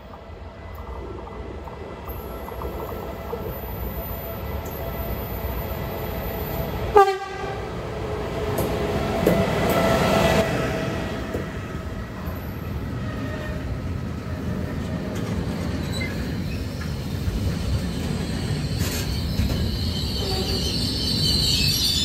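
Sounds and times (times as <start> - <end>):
train wheels on rail: 0.0 - 22.0
locomotive horn blast: 6.9 - 7.7.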